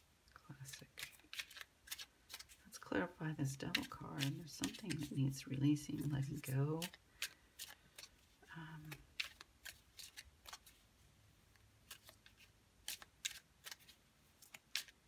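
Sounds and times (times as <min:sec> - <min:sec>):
cards being shuffled: 0:00.6 - 0:10.9, 0:11.5 - 0:15.0.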